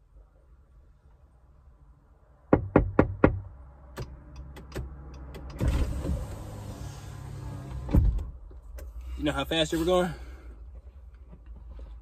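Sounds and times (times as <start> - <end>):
fist knocking on car window: 2.5 - 3.5
power window motor whirring: 5.5 - 8.0.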